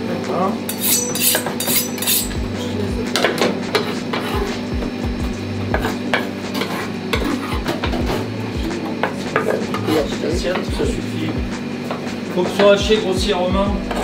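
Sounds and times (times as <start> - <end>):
utensil stirring in metal bowl: 0.7 - 2.4, 3.2 - 4.6, 5.6 - 12.7.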